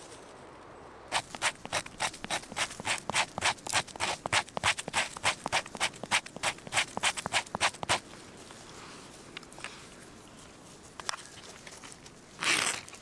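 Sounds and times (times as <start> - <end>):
rhythmic hand scraping: 1.1 - 8.0.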